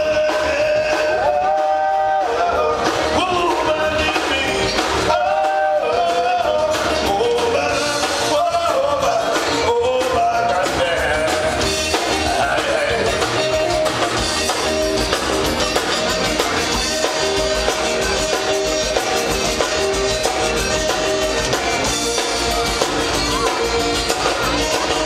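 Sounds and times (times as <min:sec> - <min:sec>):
person singing: 0:00.0 - 0:14.0
drums: 0:00.0 - 0:25.0
electric guitars: 0:00.0 - 0:25.0.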